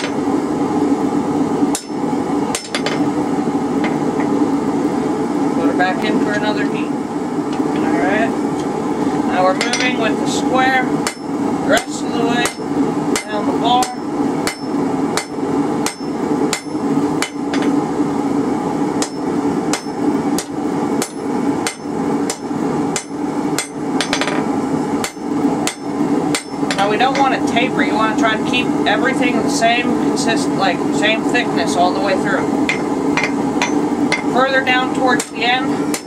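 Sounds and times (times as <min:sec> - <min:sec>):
hammer striking metal on anvil: 0:01.7 - 0:03.1, 0:09.6 - 0:10.0, 0:11.0 - 0:11.3, 0:12.4 - 0:17.8, 0:19.0 - 0:27.4, 0:32.7 - 0:34.3.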